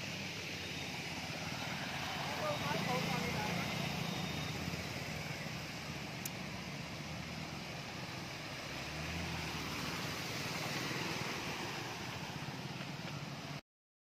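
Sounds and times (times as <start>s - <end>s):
motorcycle engines running: 0.0s - 8.6s
water spraying: 0.0s - 13.6s.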